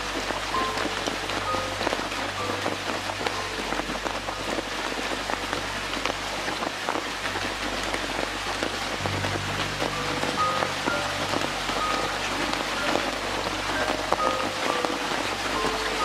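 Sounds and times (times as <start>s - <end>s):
steady rain falling: 0.0s - 16.0s.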